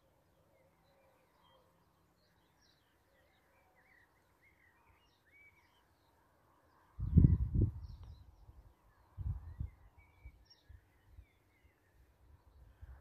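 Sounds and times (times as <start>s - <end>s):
songbird chirps and whistles: 0.6s - 6.0s.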